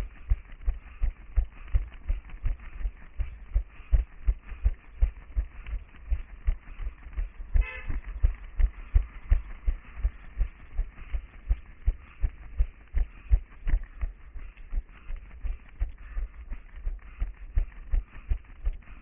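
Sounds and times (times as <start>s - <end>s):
running footsteps: 0.0s - 19.0s
vehicle horn toot: 7.6s - 8.0s.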